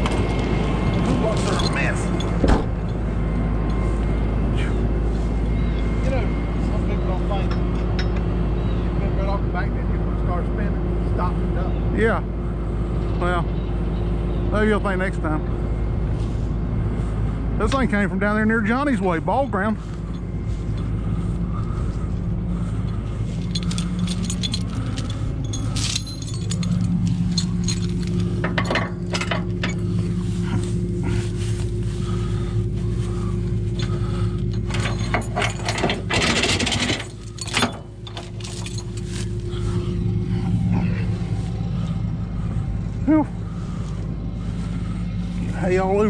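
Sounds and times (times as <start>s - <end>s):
metal clinks and scrapes: 0.0s - 3.0s, 22.8s - 42.0s
truck engine running: 0.0s - 46.0s.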